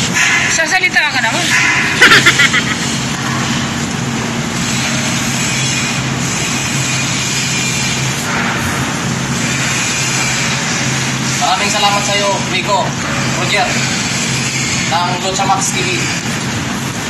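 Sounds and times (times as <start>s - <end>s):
vehicle engine drone: 1.5s - 5.5s.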